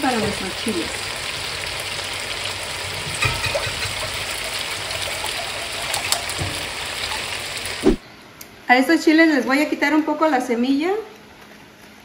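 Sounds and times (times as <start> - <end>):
water pouring into a pot: 0.0 - 7.8.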